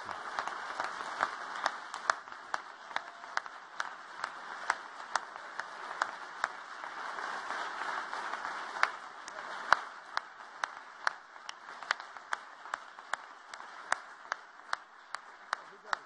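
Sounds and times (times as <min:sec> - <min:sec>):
audience applause: 0:00.0 - 0:16.0
one person clapping sharply: 0:00.0 - 0:16.0.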